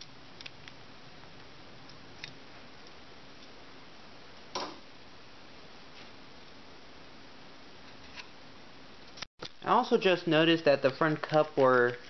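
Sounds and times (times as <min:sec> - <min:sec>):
room tone hiss: 0:00.0 - 0:11.9.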